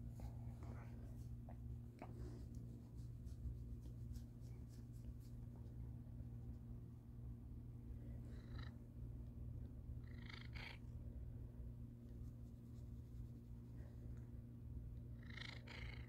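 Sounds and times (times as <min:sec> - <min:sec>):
cat purring: 0:08.2 - 0:08.8, 0:10.0 - 0:10.9, 0:15.1 - 0:16.0.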